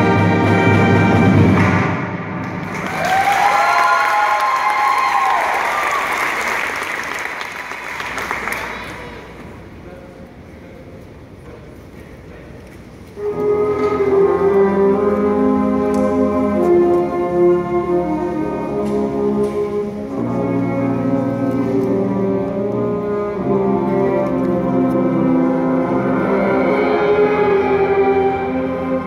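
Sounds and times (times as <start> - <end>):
brass band sustained chords: 0.0 - 2.8, 13.2 - 29.0.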